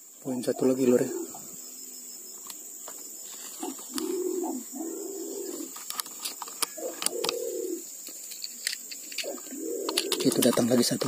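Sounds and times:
pigeon cooing: 0.5s - 1.6s, 3.6s - 5.8s, 6.7s - 7.9s, 9.2s - 10.7s.

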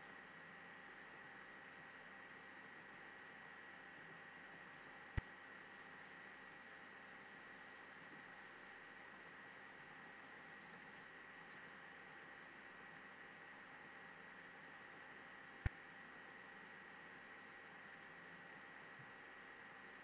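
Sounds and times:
faint steady whine: 0.0s - 20.0s
steady hiss: 0.0s - 20.0s
rapid swishing strokes on screen: 4.8s - 12.2s
small tick: 5.1s - 5.4s.

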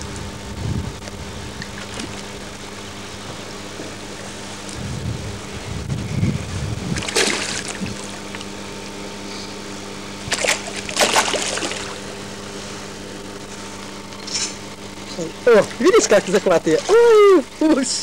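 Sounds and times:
steady mechanical hum: 0.0s - 18.0s
fish splashing at water surface: 7.0s - 8.5s, 10.3s - 12.2s.

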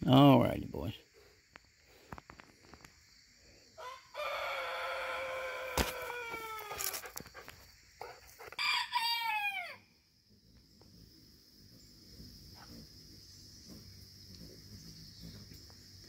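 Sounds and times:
rooster crowing: 3.8s - 6.8s, 8.4s - 9.9s.

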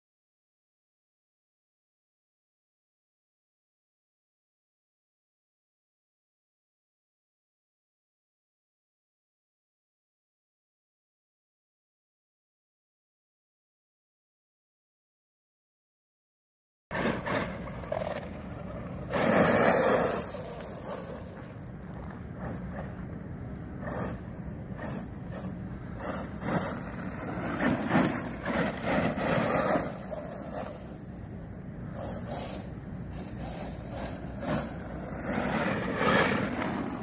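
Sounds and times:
tyres spinning on gravel: 16.9s - 23.2s, 23.8s - 37.0s
rc truck motor surging: 16.9s - 37.0s.

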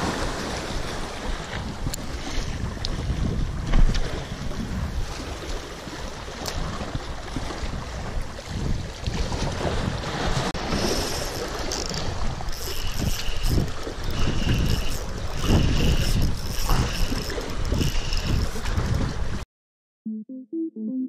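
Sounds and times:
sea waves: 0.0s - 19.4s
wind buffeting microphone: 0.0s - 19.4s
fishing reel whirring: 10.6s - 18.8s.

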